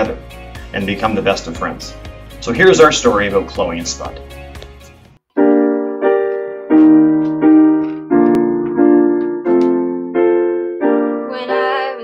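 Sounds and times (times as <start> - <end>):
slow piano chords: 5.3 - 12.0.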